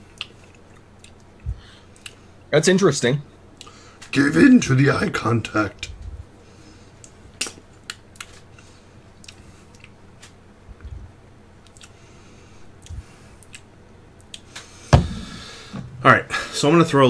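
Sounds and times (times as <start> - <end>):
soft low thumps: 5.9 - 6.3, 14.9 - 16.0.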